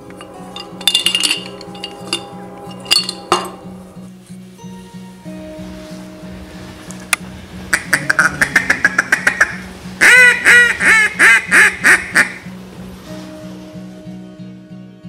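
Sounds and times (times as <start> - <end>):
background music with steady beat: 0.0 - 15.0
duck call notes and quacks: 7.7 - 12.4.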